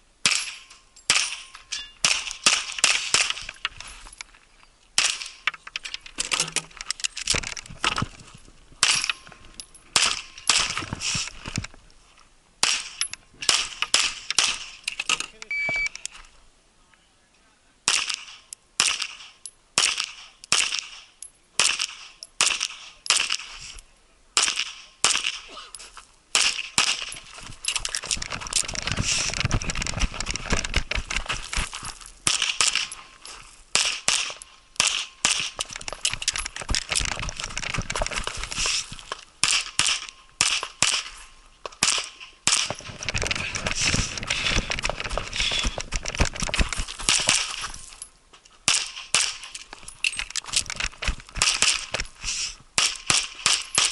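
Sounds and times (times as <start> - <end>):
pistol shots: 33.7 - 35.6.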